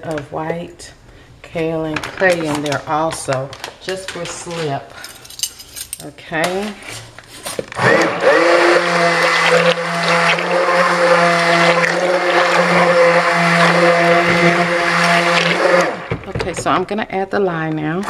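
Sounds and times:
immersion blender whining: 7.6 - 16.3.

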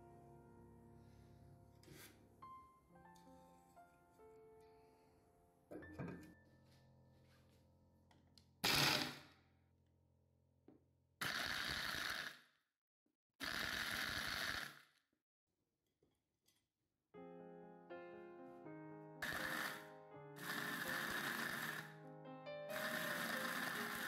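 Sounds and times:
soft background music: 0.0 - 7.6, 17.2 - 24.0
electric food chopper grinding: 8.6 - 9.3, 11.2 - 12.4, 13.4 - 14.9, 19.2 - 22.0, 22.7 - 24.0.

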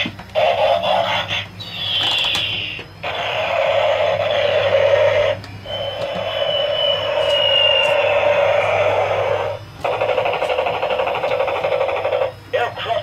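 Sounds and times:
buzzy warbling electronic toy sound: 0.4 - 13.0
falling electronic whistle: 4.0 - 9.6.

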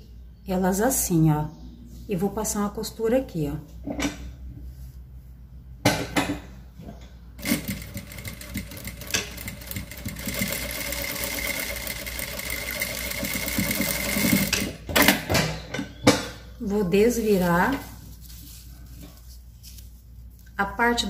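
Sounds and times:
sewing machine stitching: 7.4 - 15.2.

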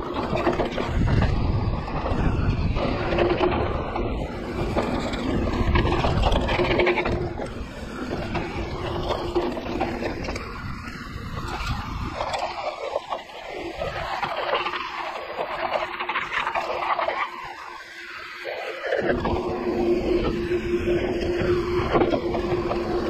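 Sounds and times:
wind on microphone: 0.0 - 17.8, 19.0 - 23.0
bike rattling: 0.0 - 23.0.

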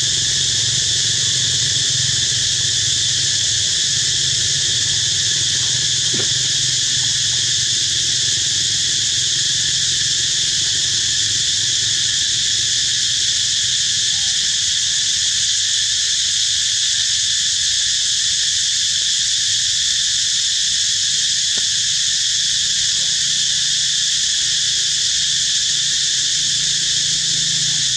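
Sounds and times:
high-pitched insect chorus: 0.0 - 27.9.

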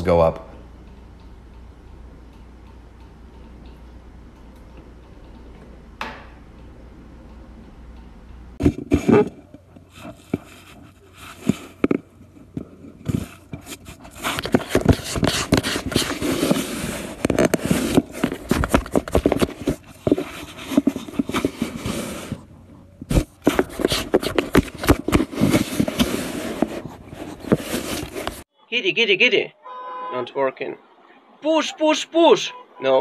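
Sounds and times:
cat scratching cardboard box: 13.1 - 22.4.

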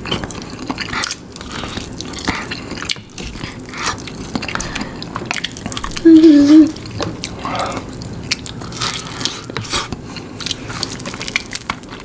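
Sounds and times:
people chewing and smacking: 0.0 - 12.0.

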